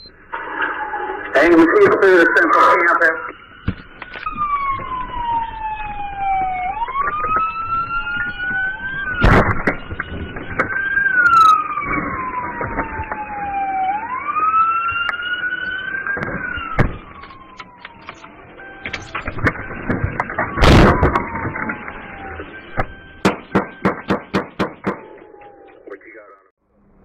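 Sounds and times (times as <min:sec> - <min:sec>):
second siren tone: 0:00.0 - 0:24.2, 0:24.8 - 0:26.0
police siren wailing: 0:00.0 - 0:26.4
sharp loud knocks: 0:22.8 - 0:25.2.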